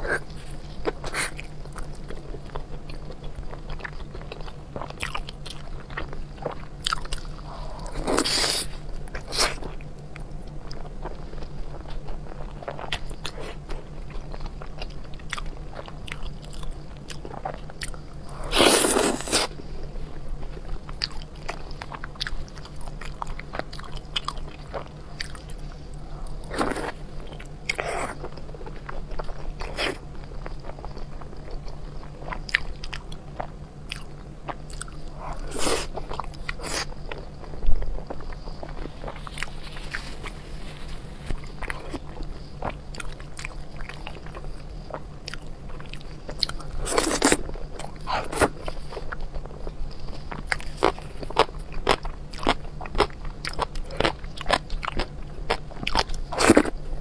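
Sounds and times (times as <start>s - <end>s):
biting and chewing: 20.3s - 57.0s.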